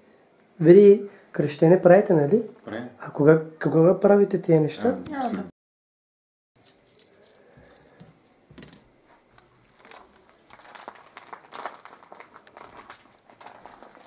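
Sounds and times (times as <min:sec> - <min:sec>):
coins clinking: 0:06.6 - 0:08.9.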